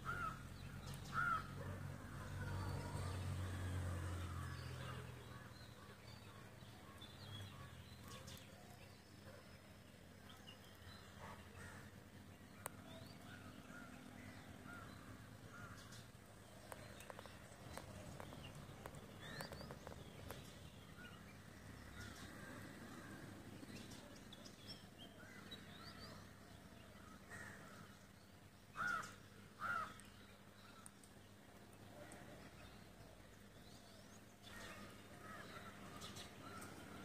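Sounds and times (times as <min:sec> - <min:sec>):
crows cawing: 0:00.0 - 0:00.4, 0:01.1 - 0:01.6, 0:27.3 - 0:27.8, 0:28.8 - 0:30.0
small birds chirping: 0:00.0 - 0:37.0.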